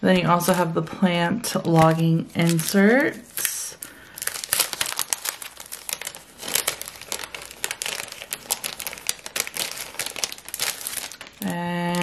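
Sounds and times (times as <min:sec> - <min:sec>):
paper sheets rustling: 0:01.6 - 0:03.5, 0:04.2 - 0:12.0.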